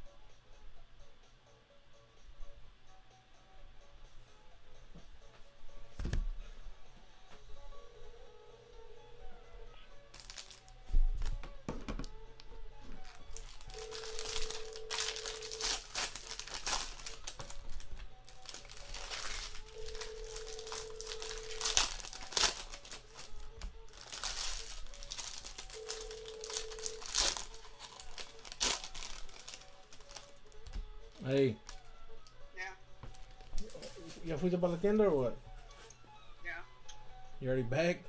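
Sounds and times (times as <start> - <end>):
foil wrappers crinkling and tearing: 10.1 - 11.4, 12.9 - 31.9.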